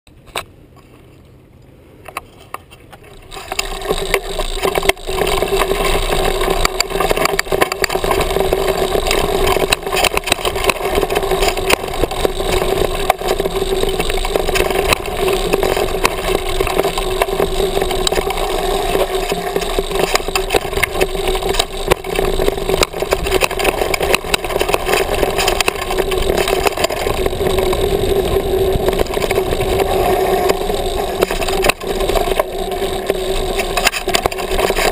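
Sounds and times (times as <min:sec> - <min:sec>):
rattling clicks and knocks: 0:02.1 - 0:34.9
bike tyres rolling over gravel: 0:02.8 - 0:34.9.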